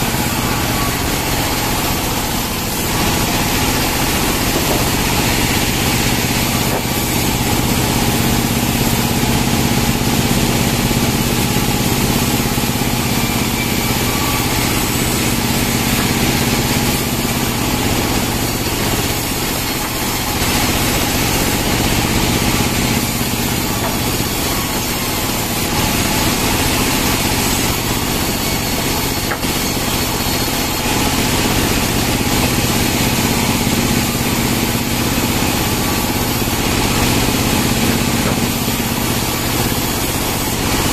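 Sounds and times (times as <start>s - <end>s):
bandsaw mill sawing logs: 0.0s - 40.9s.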